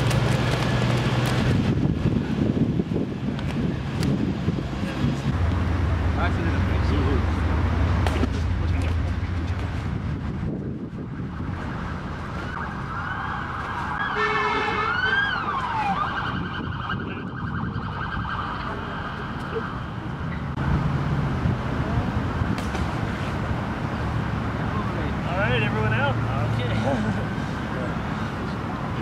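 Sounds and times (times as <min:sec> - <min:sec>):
city traffic rumble: 0:00.0 - 0:29.0
emergency vehicle siren: 0:11.0 - 0:20.6.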